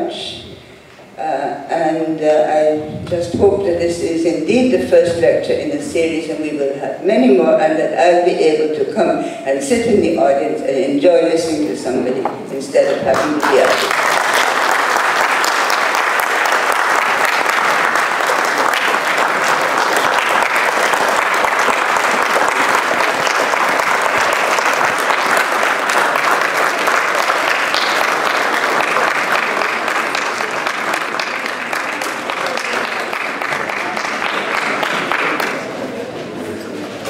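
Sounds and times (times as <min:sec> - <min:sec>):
audience applauding: 0:13.1 - 0:35.8.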